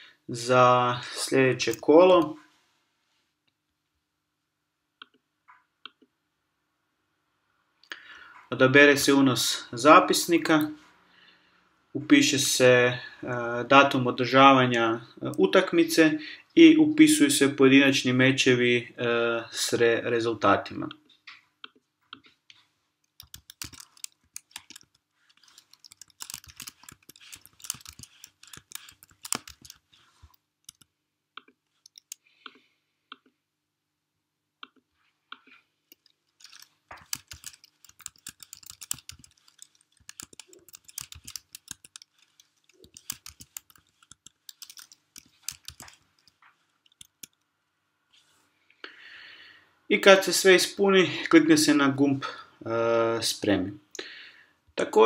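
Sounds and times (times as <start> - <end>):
typing on computer keyboard: 23.0 - 32.2, 35.9 - 47.4.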